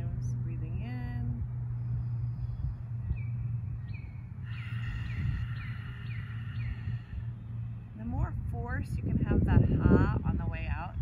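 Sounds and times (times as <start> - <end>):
steady low hum: 0.0 - 11.0
bird chirping: 1.7 - 8.0.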